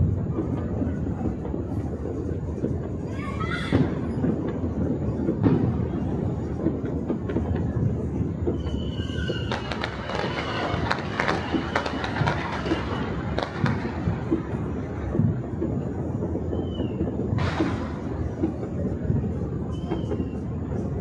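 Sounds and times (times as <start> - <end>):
steady low rumble: 0.0 - 8.6, 9.5 - 21.0
distant fireworks popping and crackling: 0.0 - 21.0
short whistles: 8.5 - 13.2, 16.5 - 17.1, 19.7 - 20.5.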